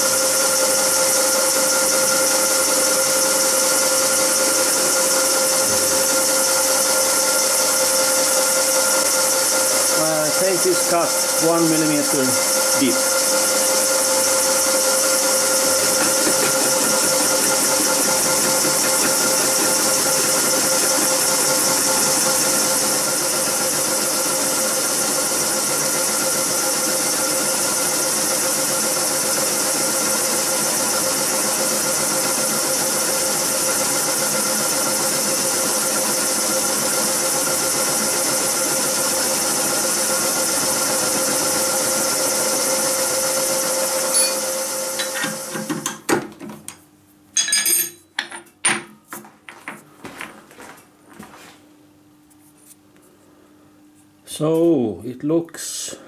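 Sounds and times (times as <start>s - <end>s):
milling machine cutting metal: 0.0s - 45.8s.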